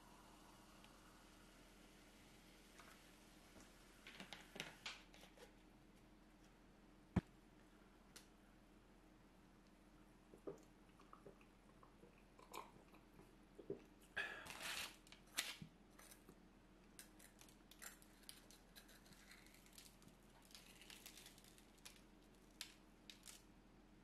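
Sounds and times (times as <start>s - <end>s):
food crackling as torn apart: 17.0s - 23.4s.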